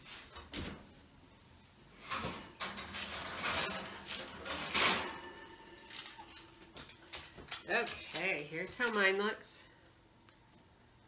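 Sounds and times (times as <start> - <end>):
metal oven rack sliding: 1.9 - 8.0
oven door opening: 2.0 - 6.6
baking dish scraping and clattering: 2.0 - 7.7.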